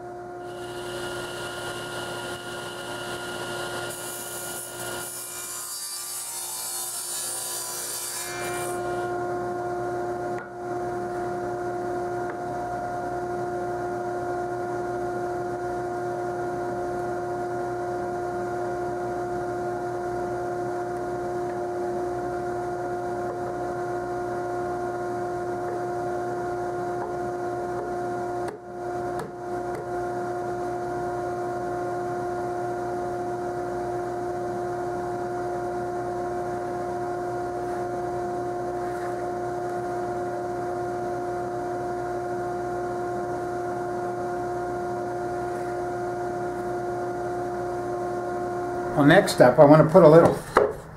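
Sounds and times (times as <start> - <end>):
steady machine hum: 0.0 - 4.8, 8.8 - 50.9
table saw cutting plywood: 0.4 - 9.1.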